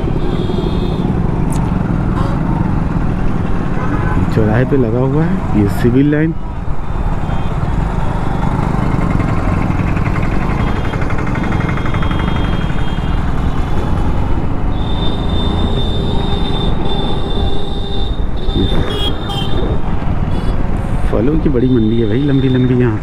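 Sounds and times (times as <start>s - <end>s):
motorcycle engine rumbling: 0.0s - 23.0s.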